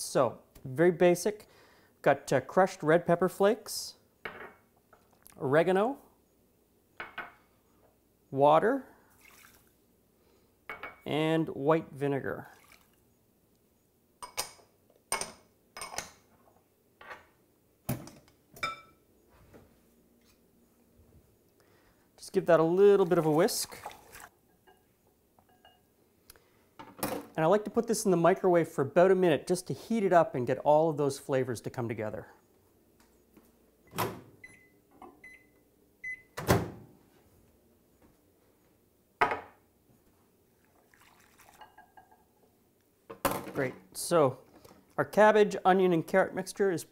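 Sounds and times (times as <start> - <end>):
glass bowls clinking: 24.5 - 25.9, 41.0 - 42.4
microwave keypad beeping: 34.4 - 36.4.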